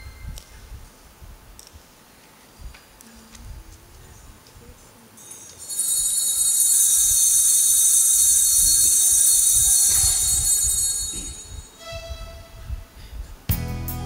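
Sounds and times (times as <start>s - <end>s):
bells ringing with shrill tone: 5.2s - 12.3s.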